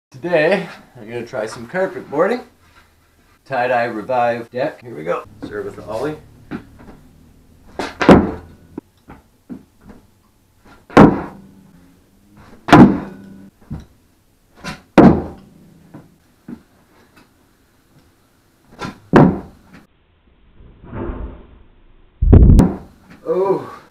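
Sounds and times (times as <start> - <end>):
skateboard deck thumping on carpet: 7.8 - 8.5.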